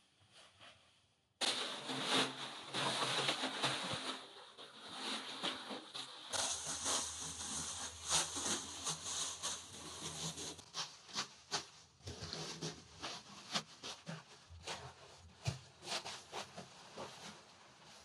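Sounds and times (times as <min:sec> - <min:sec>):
leafy branches rustling and crackling: 0:05.0 - 0:10.6.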